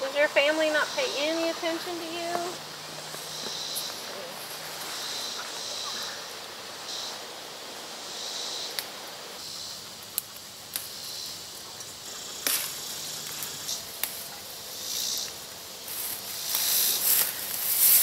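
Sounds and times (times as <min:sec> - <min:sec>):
foliage rustling: 0:00.0 - 0:18.0
stems snapping: 0:10.0 - 0:11.0, 0:12.4 - 0:14.4, 0:16.0 - 0:18.0.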